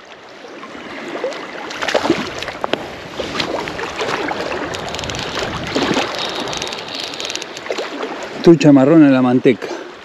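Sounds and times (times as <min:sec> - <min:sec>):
water lapping against stony shore: 0:00.0 - 0:10.0
fish splashing at surface: 0:01.7 - 0:08.3
wind on microphone: 0:01.9 - 0:08.5.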